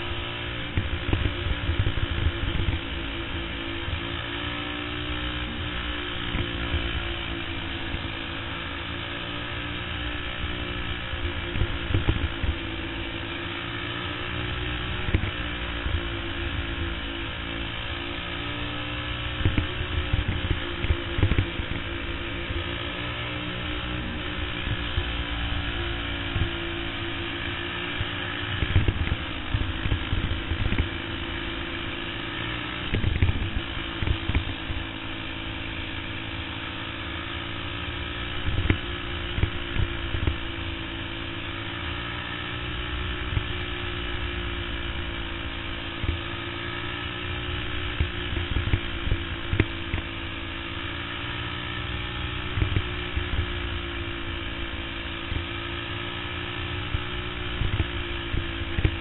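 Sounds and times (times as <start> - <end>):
kart engine running: 0.0 - 59.0.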